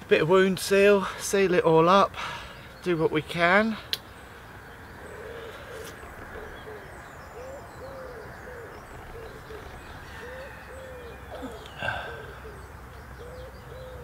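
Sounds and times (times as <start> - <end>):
steady outdoor hiss: 0.0 - 14.0
soft animal calls: 5.0 - 14.0.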